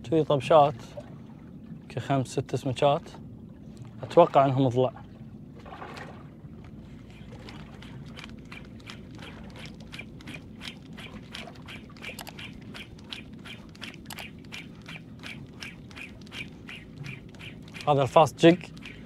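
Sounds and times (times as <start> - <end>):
fishing reel clicking: 11.7 - 18.0, 18.6 - 19.0.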